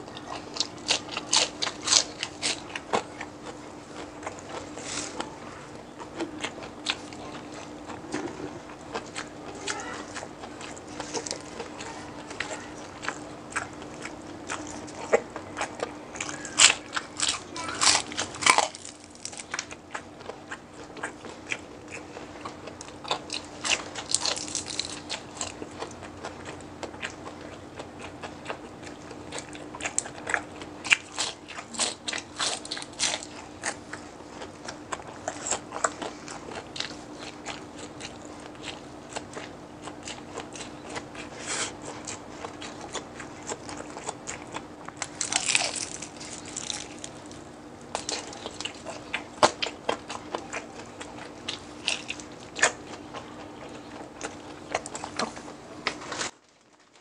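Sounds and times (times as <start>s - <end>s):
crunchy chewing: 0.0s - 57.0s
faint steady hum: 0.0s - 57.0s.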